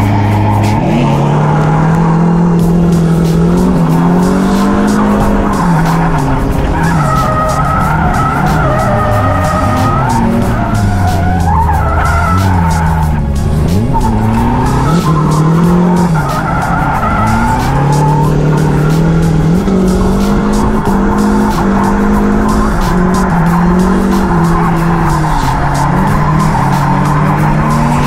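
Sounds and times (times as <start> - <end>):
car engine revving: 0.0 - 28.0
tyres skidding on tarmac: 0.0 - 28.0.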